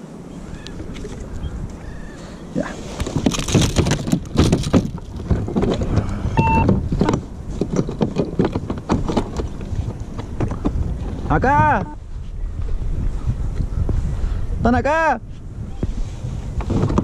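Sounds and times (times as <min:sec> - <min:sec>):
water splashing around kayak: 0:00.0 - 0:11.5
short beep: 0:06.4 - 0:06.7.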